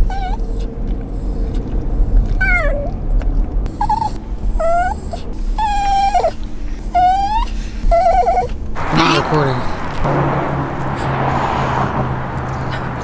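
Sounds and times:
dog whining: 0.0s - 1.6s, 2.2s - 3.0s, 3.7s - 9.2s
car hum: 0.0s - 13.0s.

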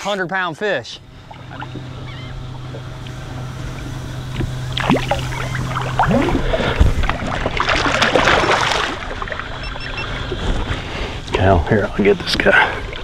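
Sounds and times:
outboard motor idling: 0.8s - 13.0s
short rising squeaks: 1.3s - 6.8s
shark thrashing and splashing: 4.4s - 10.4s.

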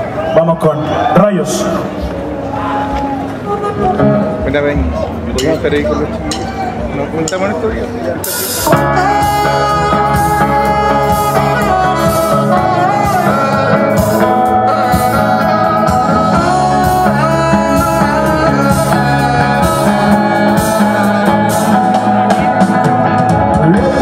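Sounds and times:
live rock band playing: 0.0s - 24.0s
person singing: 8.6s - 24.0s.

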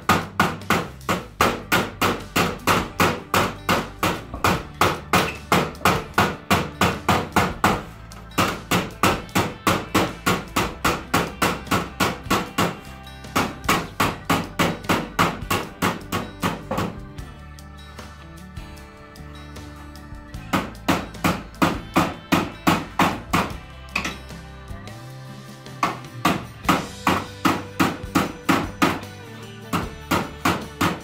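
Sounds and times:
hammer blows on sheet metal: 0.0s - 17.0s.

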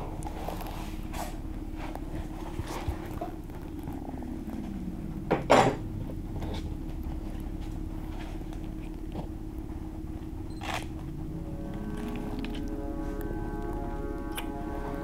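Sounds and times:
low drone with held tone: 0.0s - 15.0s
lower tone gliding down: 10.0s - 15.0s.

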